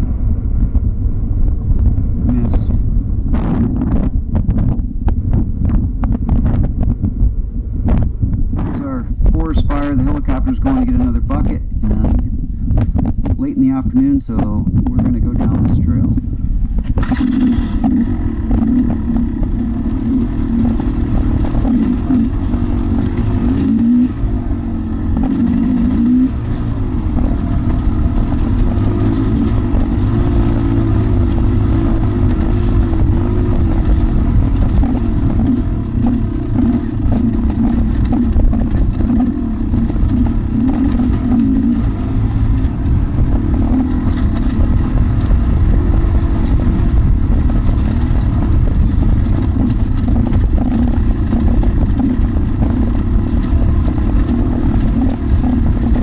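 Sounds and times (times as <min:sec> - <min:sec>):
dirt bike engine revving: 0:16.4 - 0:56.0.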